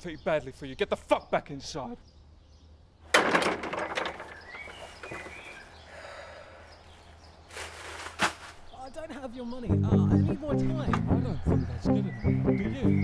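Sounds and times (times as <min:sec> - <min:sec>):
wooden door slamming: 0:03.1 - 0:04.6
rattling clatter: 0:03.1 - 0:05.4.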